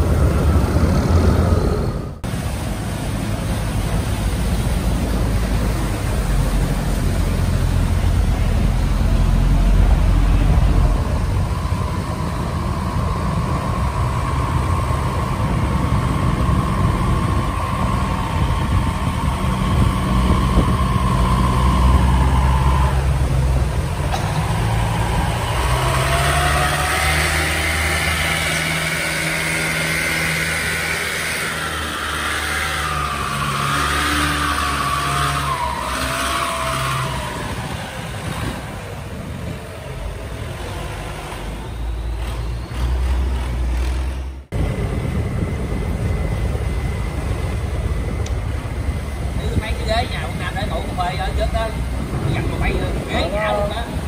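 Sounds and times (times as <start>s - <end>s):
diesel boat engines running: 0.0s - 54.0s
long-tail boat engine wavering: 0.0s - 54.0s
steady whine: 0.0s - 54.0s.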